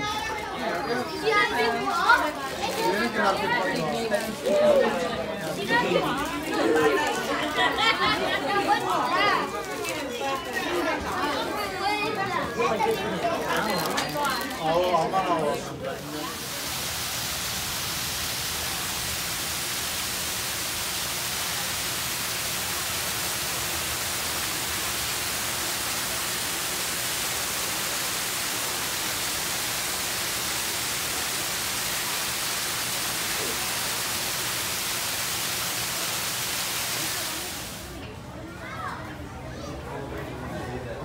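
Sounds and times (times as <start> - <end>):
waterfall splashing into pool: 16.2 - 38.0.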